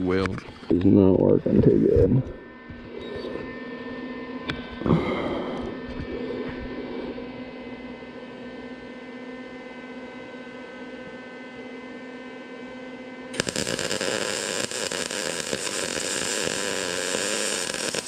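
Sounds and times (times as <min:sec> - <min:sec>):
steady hum: 0:00.0 - 0:18.0
welding arc crackling: 0:13.3 - 0:18.0.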